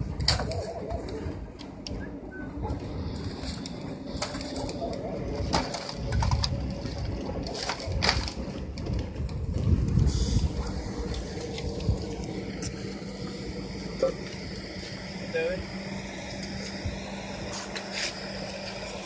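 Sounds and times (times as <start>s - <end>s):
low rumbling noise: 0.0s - 19.0s.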